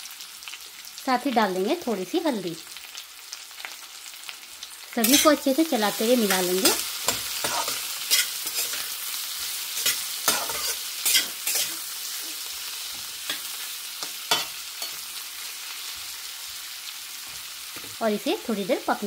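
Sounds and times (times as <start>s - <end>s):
vegetables sizzling in oil: 0.0s - 19.0s
metal spatula scraping pan: 5.0s - 15.2s.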